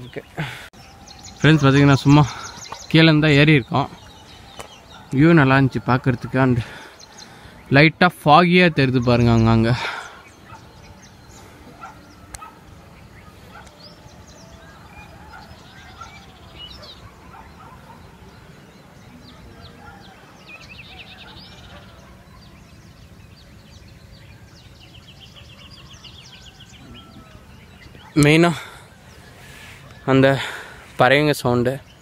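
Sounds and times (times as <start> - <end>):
rapid trilling bird calls: 0.0 - 32.0.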